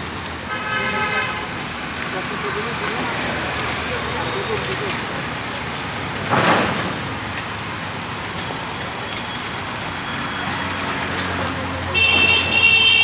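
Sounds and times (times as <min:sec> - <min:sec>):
street traffic road noise: 0:00.0 - 0:13.0.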